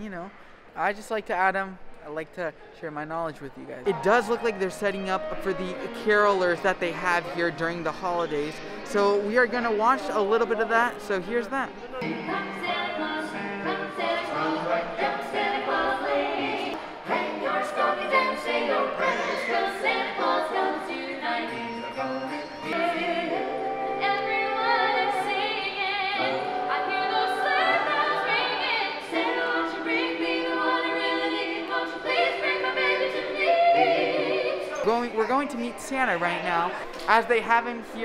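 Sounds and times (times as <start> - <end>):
carolers singing in harmony: 12.0 - 35.6.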